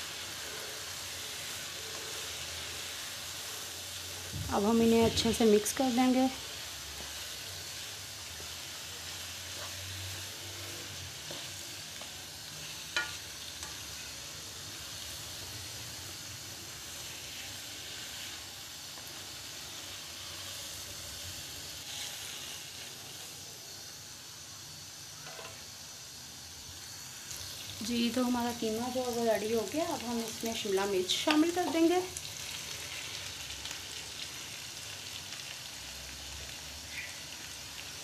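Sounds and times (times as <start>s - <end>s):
spatula scraping a wok: 0.0s - 23.4s
meat sizzling in a wok: 0.0s - 38.0s.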